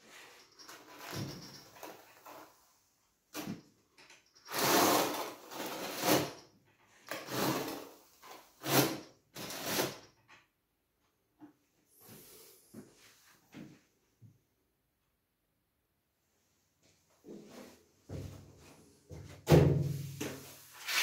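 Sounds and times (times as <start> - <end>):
trowel scraping tile adhesive: 4.4 - 6.4, 7.0 - 10.1, 20.8 - 21.0.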